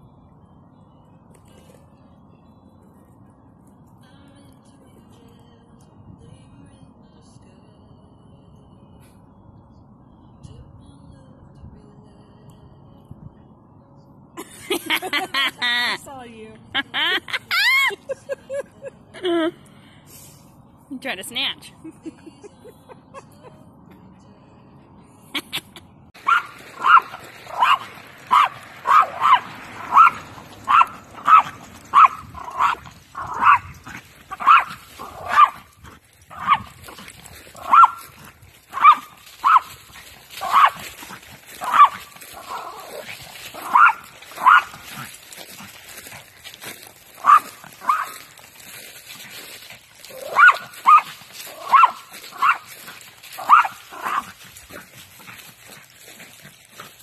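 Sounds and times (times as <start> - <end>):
small dog barking: 26.2 - 35.7, 36.3 - 37.0, 37.6 - 39.8, 40.4 - 45.1, 47.2 - 48.2, 50.1 - 52.7, 53.4 - 54.4.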